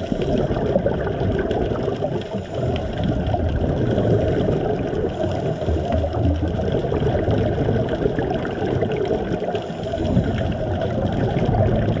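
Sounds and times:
underwater rushing and gurgling: 0.0s - 12.0s.

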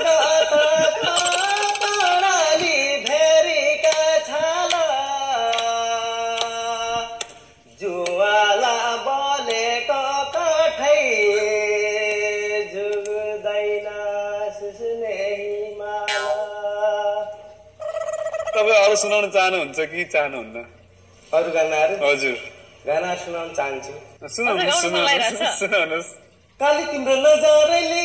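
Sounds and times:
man singing: 0.0s - 17.4s, 26.6s - 28.0s.

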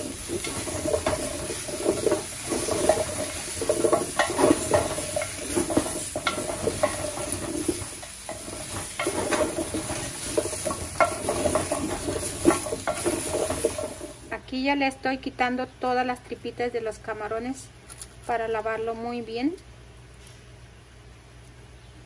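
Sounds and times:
food pieces knocking on metal: 0.0s - 14.2s
spatula scraping a metal pan: 0.0s - 14.2s.

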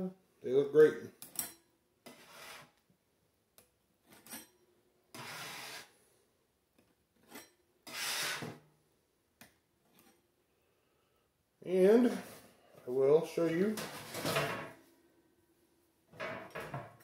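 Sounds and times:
spatula scraping metal baking sheet: 2.1s - 2.8s, 5.1s - 6.0s, 7.2s - 8.6s.

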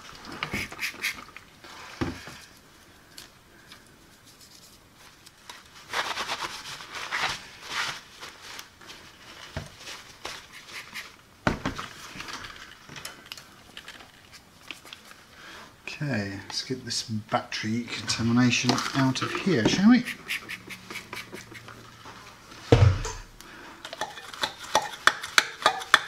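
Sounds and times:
scrubbing on plastic cover: 4.2s - 11.2s, 17.9s - 22.4s.

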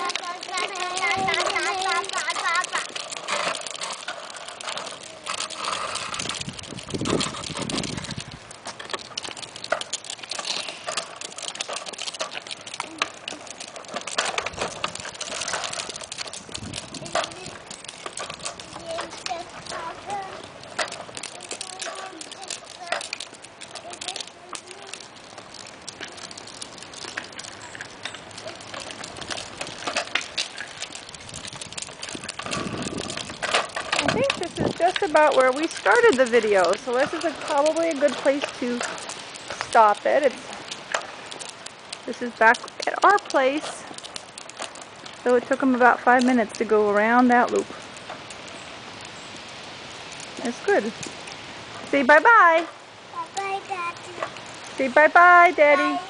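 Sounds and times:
plastic wheels rattling on concrete: 0.0s - 56.0s.

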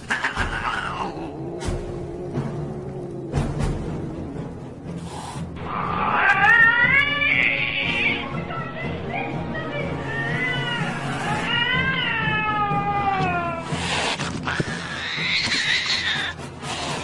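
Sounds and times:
background music: 0.0s - 17.0s
cat meowing: 5.7s - 8.1s, 14.5s - 16.4s.

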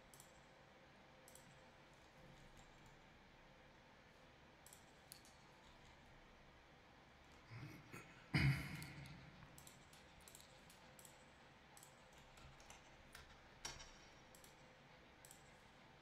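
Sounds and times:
faint handling clicks: 9.5s - 15.7s.

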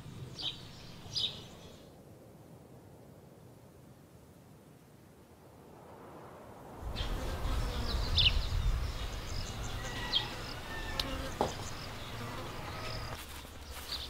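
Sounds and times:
insects buzzing: 6.8s - 14.0s.

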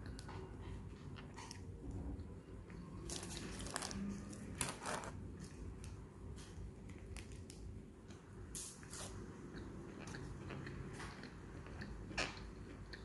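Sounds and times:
paper wrapper crinkling: 3.1s - 5.1s.

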